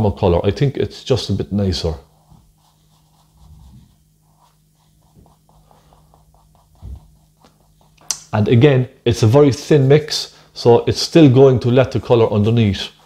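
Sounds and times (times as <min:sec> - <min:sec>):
steady low hum: 0:00.0 - 0:13.0
paintbrush strokes on canvas: 0:01.5 - 0:08.1, 0:11.8 - 0:13.0
soft low thumps: 0:03.3 - 0:04.0, 0:06.3 - 0:08.0.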